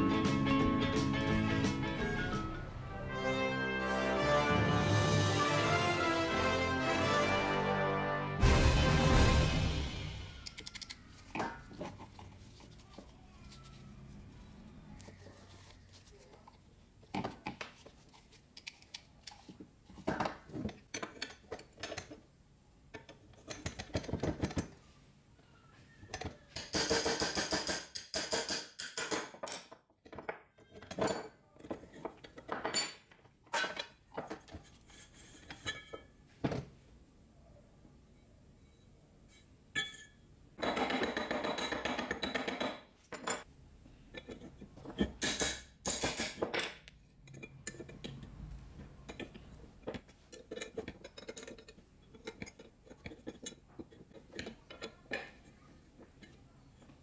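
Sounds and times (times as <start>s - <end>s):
wrenches clinking on metal: 20.4s - 22.2s, 26.1s - 34.5s, 49.0s - 57.0s.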